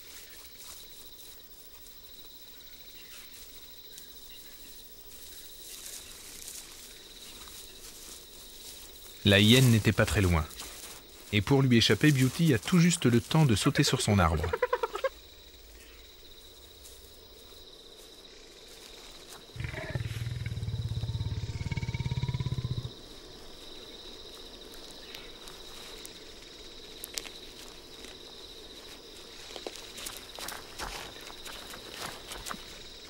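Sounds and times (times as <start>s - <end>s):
leopard growling: 19.6s - 23.0s.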